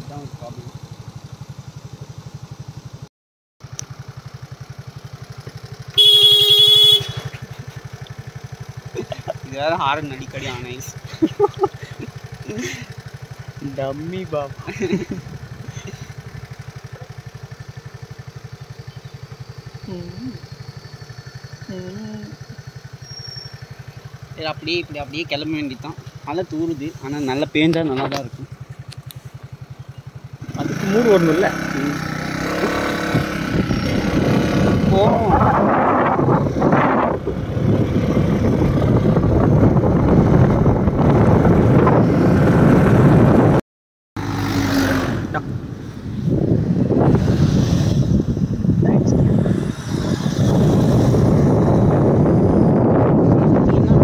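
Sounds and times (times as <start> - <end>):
motorcycle engine idling: 0.0 - 41.8
wind rushing over microphone: 32.5 - 43.6, 45.1 - 54.0.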